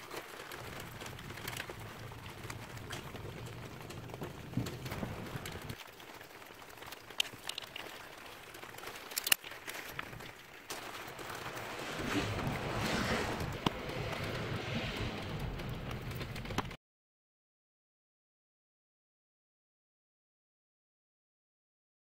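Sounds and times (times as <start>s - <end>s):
rustling scrubbing noise: 6.7s - 16.8s.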